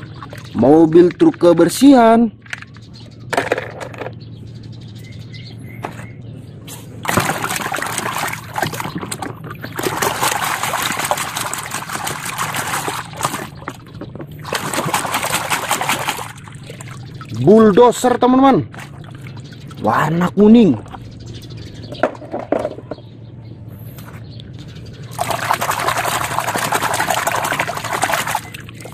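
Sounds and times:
wet mud squelching: 0:07.0 - 0:18.0.

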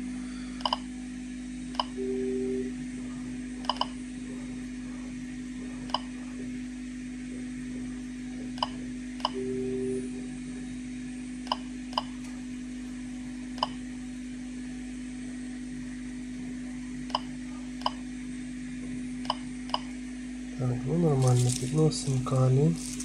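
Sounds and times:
low hum: 0:00.0 - 0:14.0
geiger counter beeps: 0:01.8 - 0:02.8, 0:08.6 - 0:10.2.

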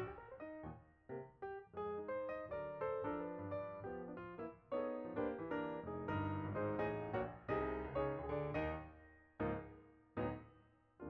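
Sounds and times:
piano music: 0:00.0 - 0:10.4.

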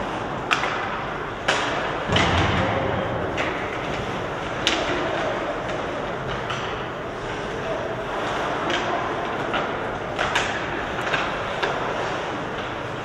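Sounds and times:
hockey sticks clacking on puck: 0:00.0 - 0:02.4, 0:03.3 - 0:13.0
thud against rink boards: 0:00.5 - 0:05.3.

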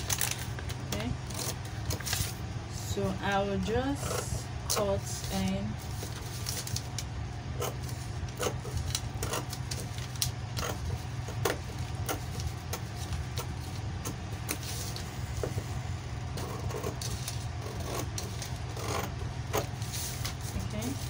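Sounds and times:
steady low hum: 0:00.0 - 0:21.0
scissors snipping paper: 0:07.6 - 0:15.0.

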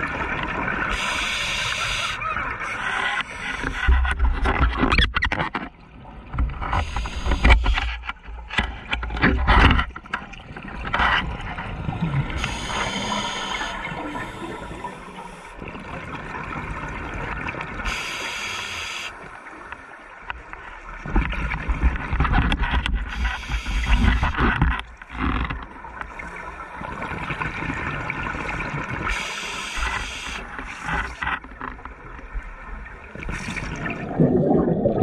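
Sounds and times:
underwater water noise: 0:00.0 - 0:35.0
exhaled bubbles gurgling: 0:10.2 - 0:18.5, 0:25.7 - 0:31.2, 0:31.9 - 0:35.0.

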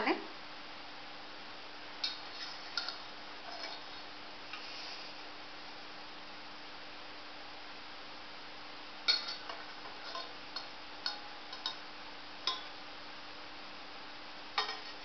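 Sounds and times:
faint steady hum: 0:00.0 - 0:15.0
ceramic plate clinking: 0:09.1 - 0:11.8, 0:12.5 - 0:12.8, 0:14.6 - 0:15.0.

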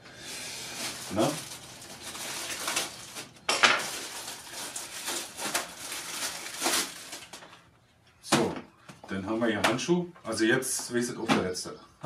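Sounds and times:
plastic packaging crinkling and tearing: 0:00.2 - 0:07.6.

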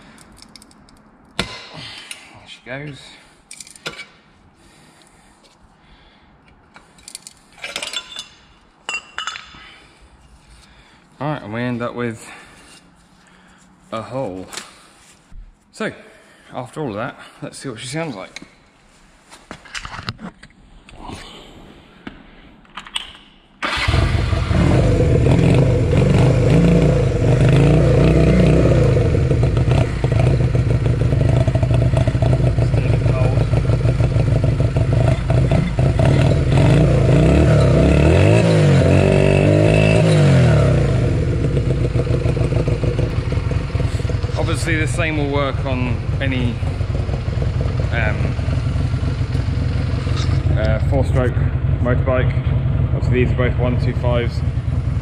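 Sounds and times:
metallic clinks and rattles: 0:00.2 - 0:01.0, 0:06.9 - 0:09.6
motorcycle engine running: 0:23.9 - 0:55.0.

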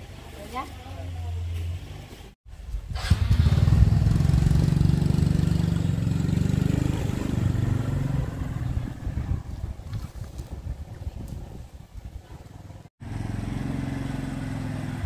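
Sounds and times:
motorcycle engine running: 0:03.0 - 0:10.0, 0:12.3 - 0:15.0.

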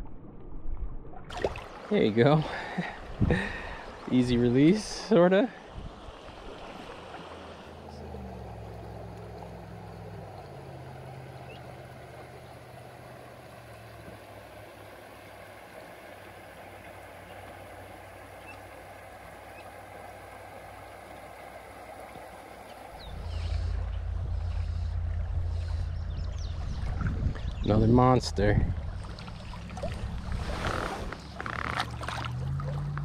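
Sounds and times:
stream water rushing: 0:01.3 - 0:33.0
low rumble: 0:07.6 - 0:14.8, 0:22.7 - 0:33.0.

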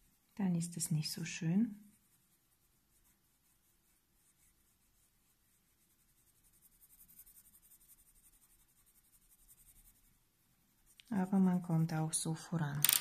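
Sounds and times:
pencil scratching on paper: 0:01.4 - 0:11.4.

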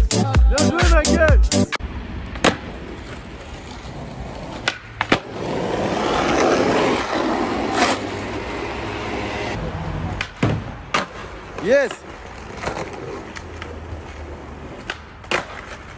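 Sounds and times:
skateboard wheels rolling on asphalt: 0:01.8 - 0:15.9
skateboard clacking on ground: 0:02.3 - 0:07.1, 0:10.1 - 0:15.9.

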